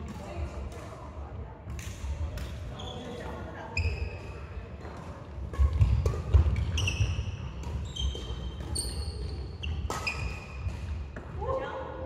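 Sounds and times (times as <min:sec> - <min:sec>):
sneakers squeaking: 0:02.4 - 0:11.4
racket hitting shuttlecock: 0:04.2 - 0:11.4.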